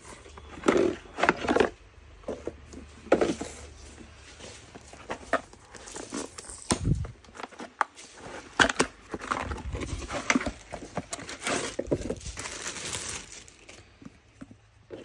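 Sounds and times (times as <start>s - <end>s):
plastic wrapping crinkling: 4.2s - 14.2s
cardboard box being opened: 4.5s - 13.8s.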